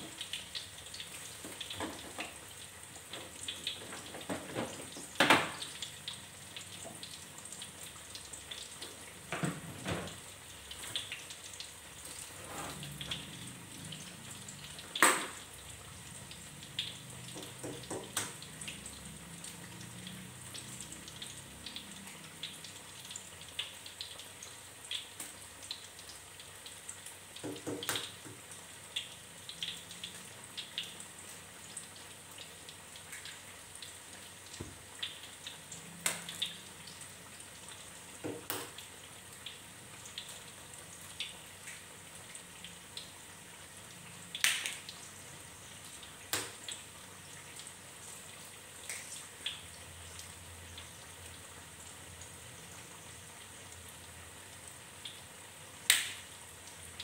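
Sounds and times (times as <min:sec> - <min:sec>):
fritter sizzling in hot oil: 0:00.0 - 0:57.0.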